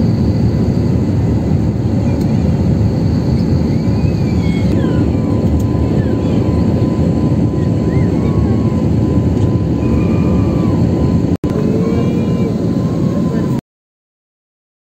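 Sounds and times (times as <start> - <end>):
airliner cabin engine rumble: 0.0 - 13.6.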